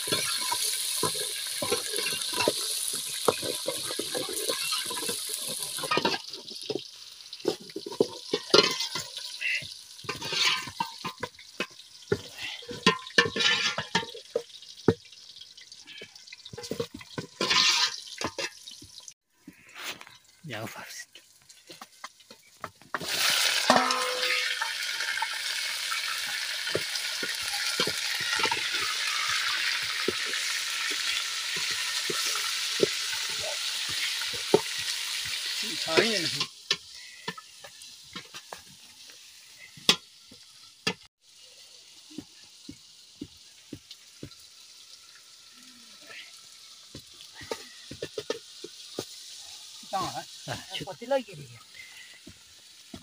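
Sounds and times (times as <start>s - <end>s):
metal ladle scraping pot: 0.0s - 6.8s, 7.4s - 14.4s, 16.5s - 18.7s, 23.0s - 38.6s
meat sizzling in hot oil: 0.0s - 53.0s.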